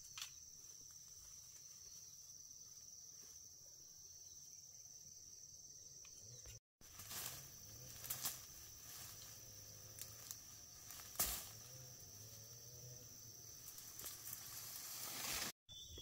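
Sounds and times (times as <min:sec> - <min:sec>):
rustles: 0:06.8 - 0:15.6.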